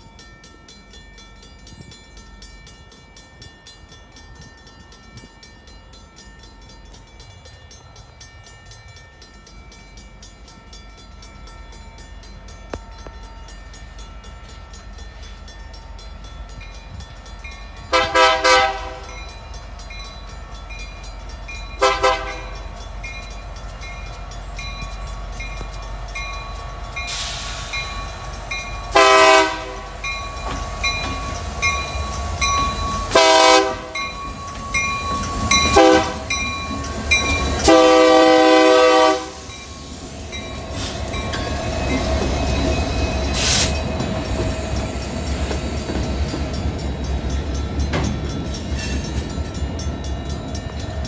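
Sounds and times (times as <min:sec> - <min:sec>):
crossing bell dinging: 0:00.0 - 0:51.0
train rumbling past: 0:00.0 - 0:51.0
locomotive air horn blasts: 0:17.9 - 0:19.2, 0:21.8 - 0:22.6, 0:28.9 - 0:30.0, 0:33.1 - 0:34.0, 0:35.7 - 0:36.3, 0:37.6 - 0:39.5
air hiss: 0:27.0 - 0:28.8, 0:39.2 - 0:41.2, 0:43.3 - 0:44.0.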